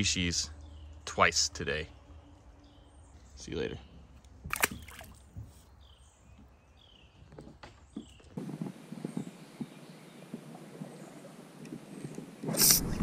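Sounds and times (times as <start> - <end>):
bird chirping: 0.0 - 12.2
fish splashing into water: 4.5 - 5.2.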